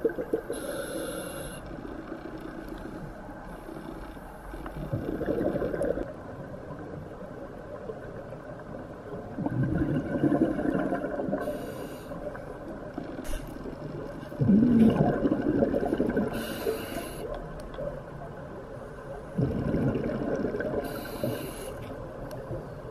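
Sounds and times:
regulator inhalation hiss: 0.5s - 1.7s, 16.3s - 17.3s, 20.9s - 21.8s.

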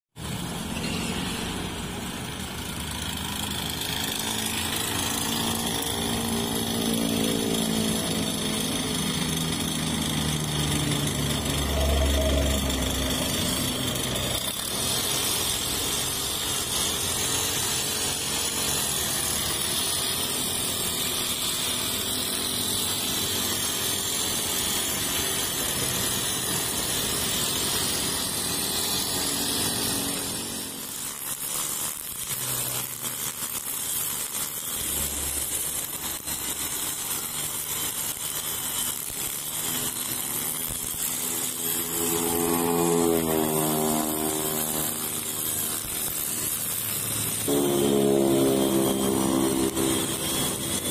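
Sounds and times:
brush cutter engine running: 0.2s - 50.9s.

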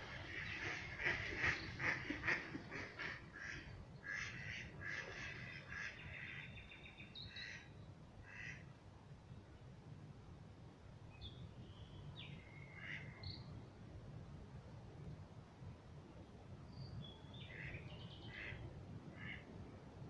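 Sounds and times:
birds calling: 0.0s - 7.7s.

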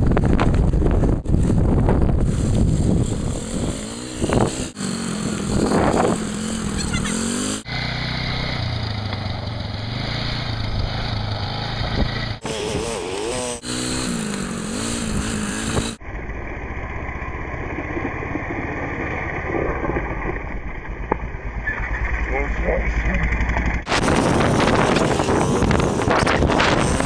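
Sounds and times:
small atv engine revving: 1.4s - 18.0s, 22.9s - 27.0s.

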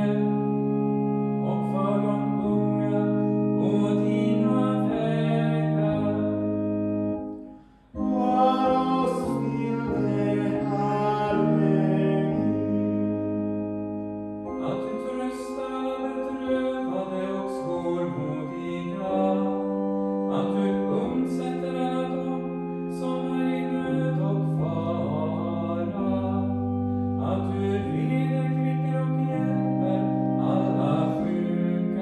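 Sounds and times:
organ chords: 0.0s - 32.0s
people singing: 8.1s - 12.7s.

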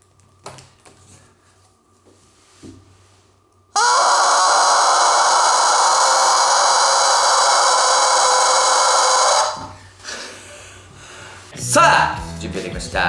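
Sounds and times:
rubber chicken toy screaming: 3.8s - 9.8s.

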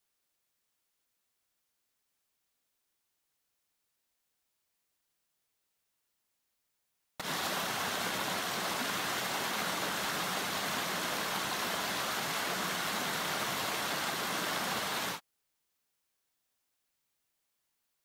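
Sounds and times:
stream rushing over stones: 7.2s - 15.2s.

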